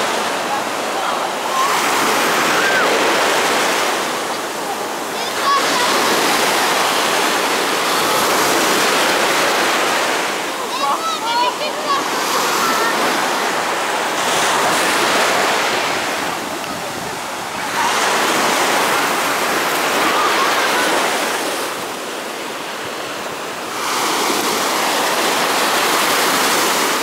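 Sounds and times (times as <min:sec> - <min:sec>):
sea surf breaking: 0:00.0 - 0:27.0.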